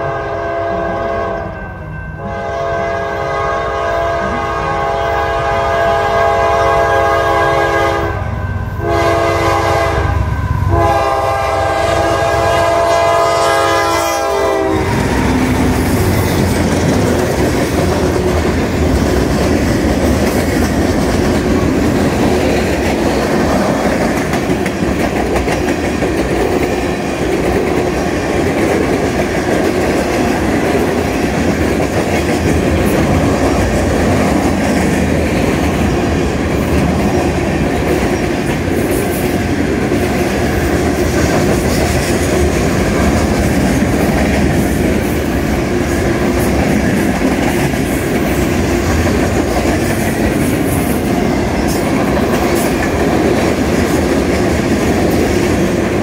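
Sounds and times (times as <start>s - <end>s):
locomotive horn: 0.0s - 1.6s, 2.2s - 16.0s
train wheels clacking: 11.0s - 56.0s.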